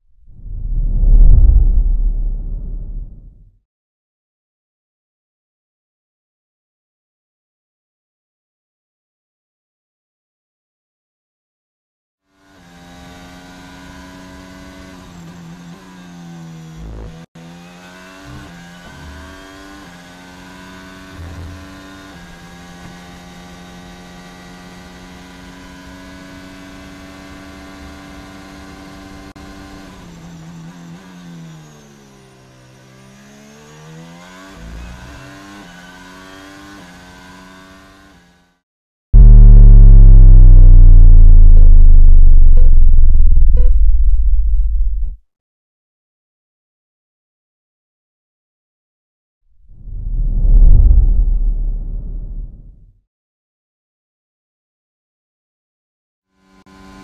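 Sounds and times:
deep falling-pitch sound effect: 0.2 - 3.4, 39.2 - 45.2, 49.7 - 52.8
racing car engine: 12.4 - 38.6, 39.2 - 44.0, 56.4 - 57.0.

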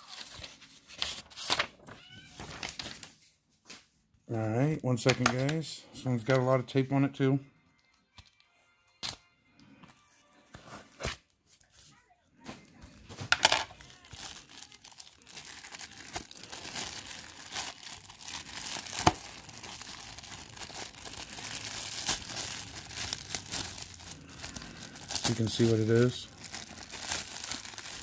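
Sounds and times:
plastic bag crinkling: 13.2 - 28.0
plastic ripping: 13.3 - 28.0.

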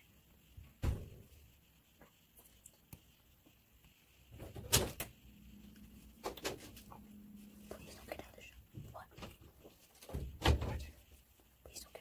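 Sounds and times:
dull thump: 0.8 - 1.2
knocks and rustling: 8.7 - 11.0.

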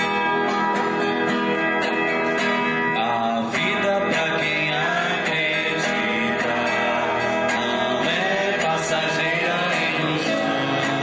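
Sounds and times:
acoustic guitar chords: 0.0 - 11.0.

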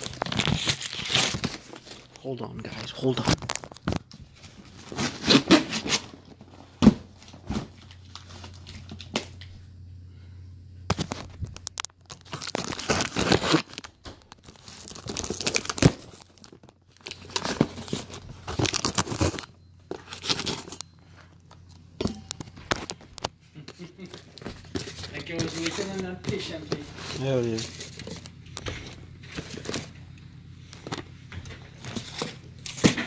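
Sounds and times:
cardboard box being torn open: 0.0 - 1.9, 12.2 - 13.8, 17.0 - 19.5
plastic wrapping crinkling: 0.0 - 9.4, 10.9 - 30.0.

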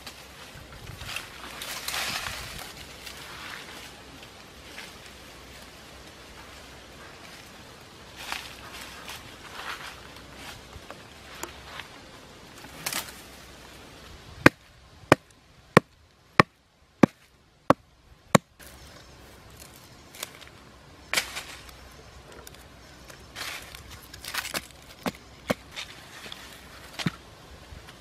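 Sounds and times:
rustling of dry leaves: 0.0 - 28.0
chopping strikes on wood: 14.4 - 18.5.

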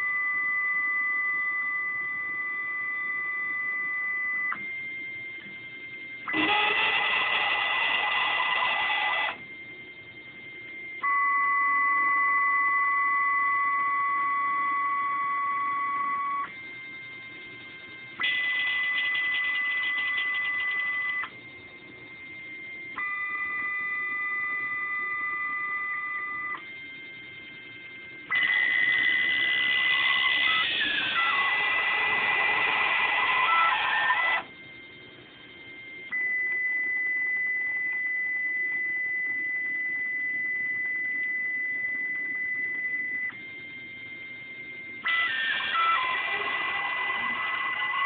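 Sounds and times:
stepper motors whining: 6.3 - 9.4, 28.3 - 34.5, 45.0 - 48.0.

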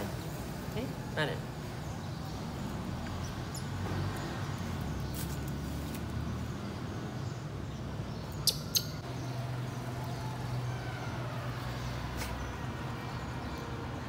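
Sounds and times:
baby monkey squeaks: 8.4 - 9.0.

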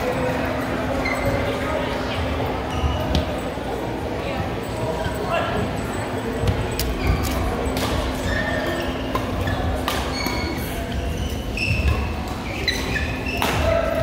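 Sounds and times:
voices chattering: 0.0 - 14.0
shoe squeaks on court: 1.0 - 1.6, 2.7 - 3.6, 6.3 - 13.9
racket hitting shuttlecock: 9.1 - 10.7, 11.8 - 14.0.

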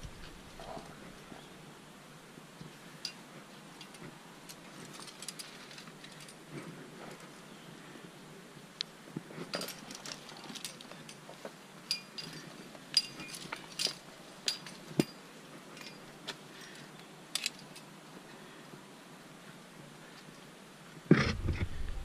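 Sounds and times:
metal climbing gear clinking: 2.6 - 7.4, 9.4 - 18.0.

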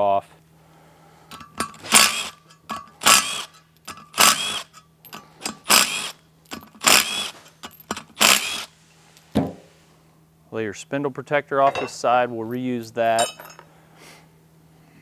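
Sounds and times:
impact driver bursts: 1.7 - 2.4, 3.0 - 4.7, 5.4 - 8.7.

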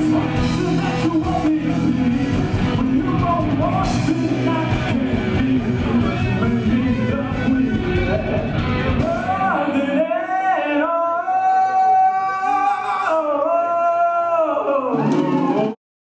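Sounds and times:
band low end: 0.0 - 9.8
man singing: 0.0 - 15.8.

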